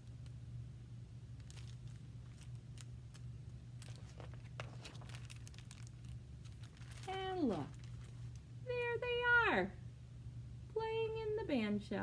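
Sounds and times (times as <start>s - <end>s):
steady low hum: 0.0s - 12.0s
book handling clicks and rustles: 1.4s - 8.5s.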